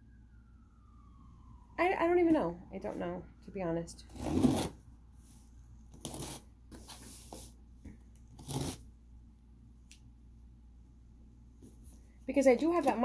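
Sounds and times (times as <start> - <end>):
scissors cutting cardboard: 4.1 - 4.8, 5.9 - 7.4, 8.3 - 8.8.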